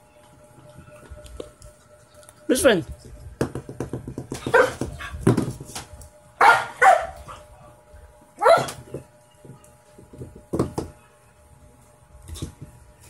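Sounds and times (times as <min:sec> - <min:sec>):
puppy barking: 0:04.4 - 0:05.1, 0:06.4 - 0:07.4, 0:08.4 - 0:08.8.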